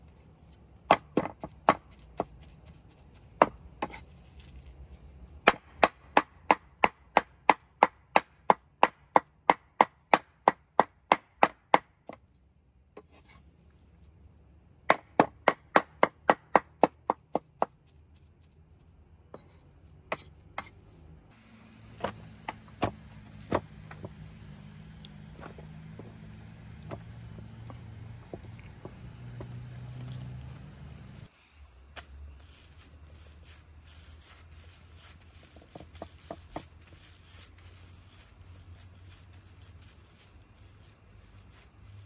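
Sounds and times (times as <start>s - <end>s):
cleaver chopping on wooden board: 14.9s - 17.7s.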